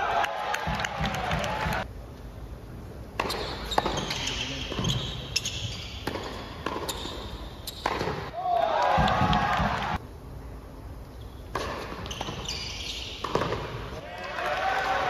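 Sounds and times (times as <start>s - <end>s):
tennis ball bouncing on court: 3.2s - 8.3s, 8.9s - 10.0s, 11.5s - 14.0s.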